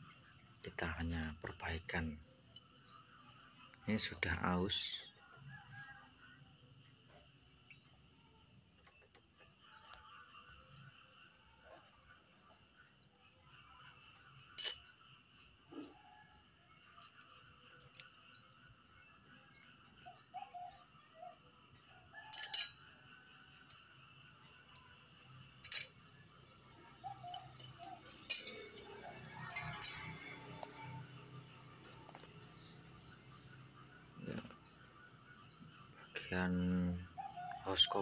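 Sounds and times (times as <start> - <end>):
metal clutch plates clinking: 25.6 - 25.9, 28.0 - 28.8, 29.4 - 30.2.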